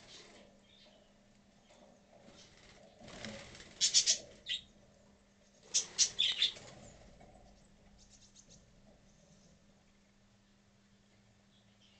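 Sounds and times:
budgerigars chirping: 3.8s - 4.7s, 5.7s - 6.6s.

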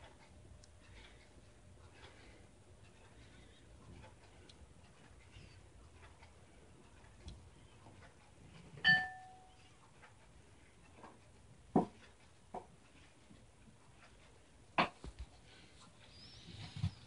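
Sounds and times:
hard knock with ringing tone: 8.8s - 9.5s.

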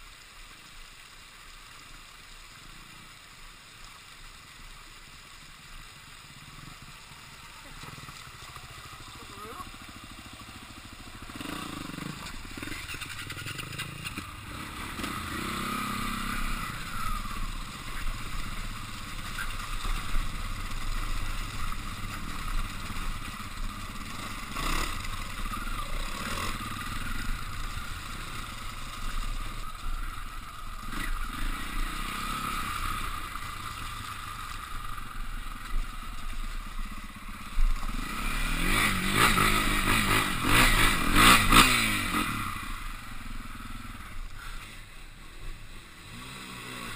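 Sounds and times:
off-road motorcycle engine revving: 5.7s - 46.9s.

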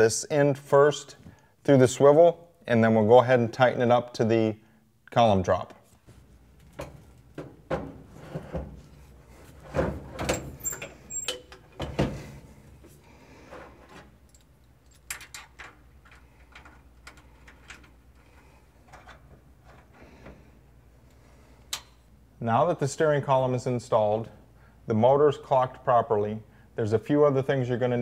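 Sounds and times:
metal clunks and rattles: 6.7s - 8.9s, 9.6s - 12.5s.

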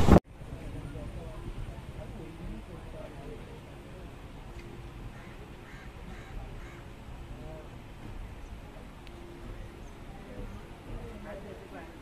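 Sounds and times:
train rolling slowly: 0.3s - 12.0s
bird calling: 4.6s - 7.0s.

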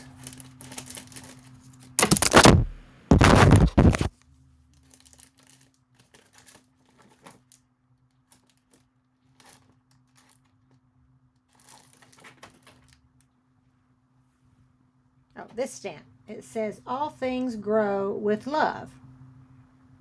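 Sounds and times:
crinkling rustle of craft supplies: 0.0s - 2.5s, 3.2s - 13.3s
low steady hum: 0.0s - 20.0s.

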